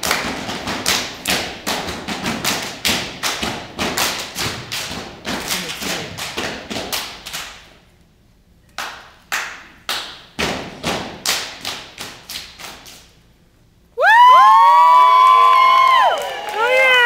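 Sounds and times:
body percussion claps and slaps: 0.0 - 7.7, 8.7 - 13.1.

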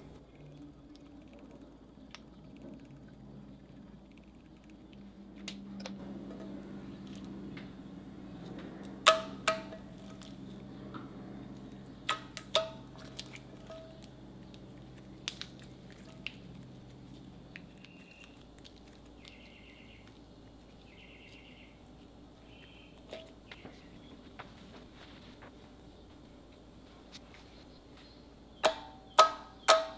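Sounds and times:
slime squishing: 11.6 - 22.1.

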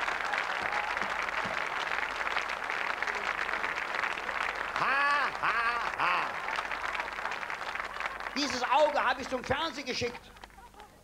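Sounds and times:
audience applauding: 0.0 - 11.0
man crying out: 4.8 - 6.4.

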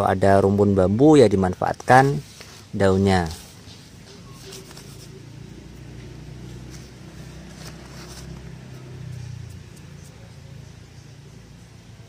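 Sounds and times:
motor engine humming: 3.3 - 11.5.

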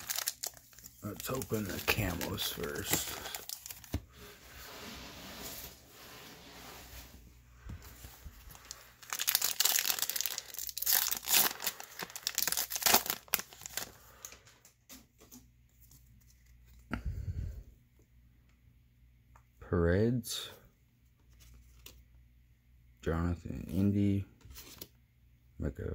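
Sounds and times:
foil wrapper crackling: 0.0 - 4.0, 8.5 - 14.4
cards rustling: 0.0 - 4.4, 7.7 - 16.9, 21.2 - 22.1, 24.4 - 24.9.

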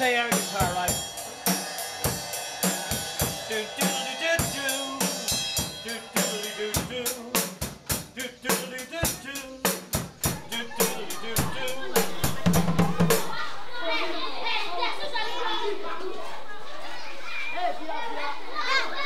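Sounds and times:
drum kit with cymbals: 0.0 - 13.4
hand drums: 0.0 - 13.4.

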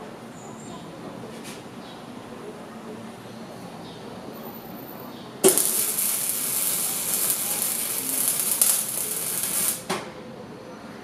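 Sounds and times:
welding arc sizzling: 5.4 - 9.9.

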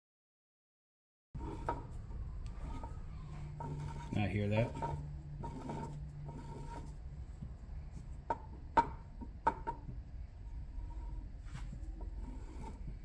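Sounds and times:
faint motor armature rubbing: 1.4 - 8.6, 10.3 - 13.0.

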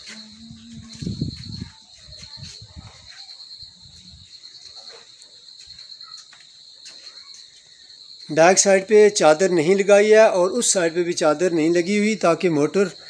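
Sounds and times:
faint low thuds: 0.0 - 3.2.

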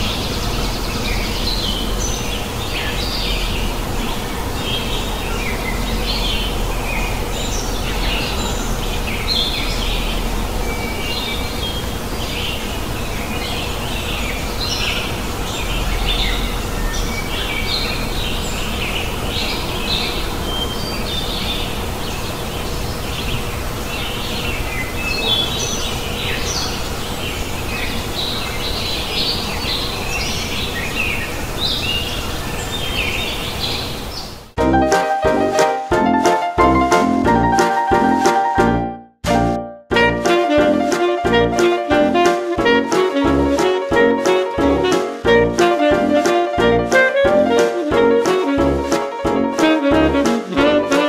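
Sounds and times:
small birds chirping: 0.0 - 34.6.

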